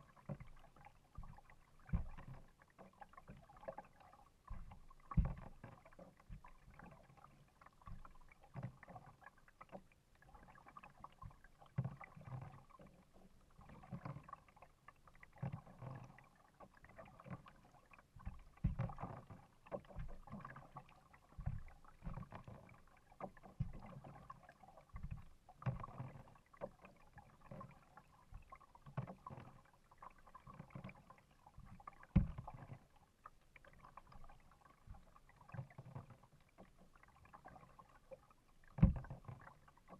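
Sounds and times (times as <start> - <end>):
paddle splashing in water: 0.0 - 39.9
thumps against kayak hull: 1.2 - 2.4, 4.5 - 6.6, 18.2 - 20.6, 21.4 - 22.6, 23.2 - 24.0, 32.1 - 32.6, 38.8 - 39.3.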